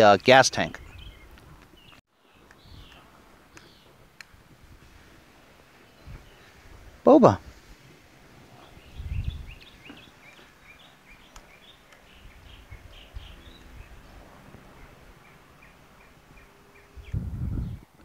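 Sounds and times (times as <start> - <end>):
small birds chirping: 0.3 - 4.0, 5.7 - 6.7, 8.4 - 17.9.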